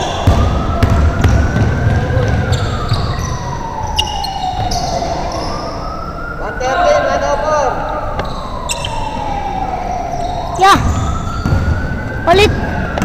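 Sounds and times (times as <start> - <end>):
siren wailing: 0.0 - 13.0
basketball thuds on court: 0.2 - 2.4, 11.4 - 11.8.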